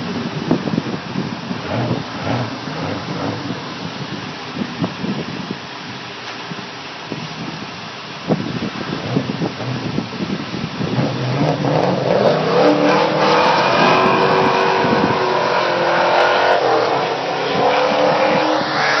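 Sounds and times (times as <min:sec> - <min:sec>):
car engine revving hard: 0:01.4 - 0:04.2, 0:10.8 - 0:19.0.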